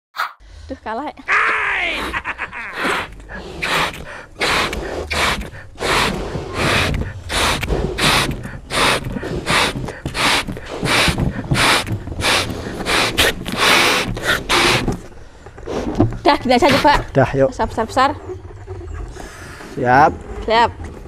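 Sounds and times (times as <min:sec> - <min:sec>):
people blowing up balloons: 0:01.7 - 0:17.1, 0:18.0 - 0:19.8
hard gasping breaths: 0:02.0 - 0:17.2, 0:19.0 - 0:19.8.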